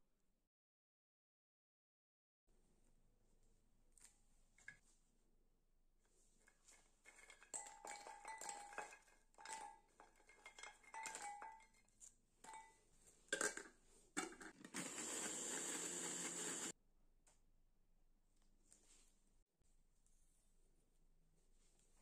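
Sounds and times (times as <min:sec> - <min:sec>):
cookies clinking into glass bowl: 0:07.0 - 0:16.7
food processor grinding: 0:14.6 - 0:16.7.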